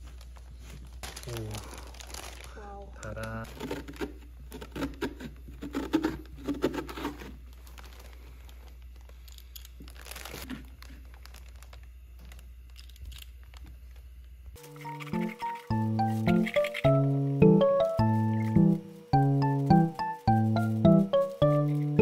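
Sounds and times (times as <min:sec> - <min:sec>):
paper crinkling: 0:00.0 - 0:04.1, 0:06.7 - 0:13.9.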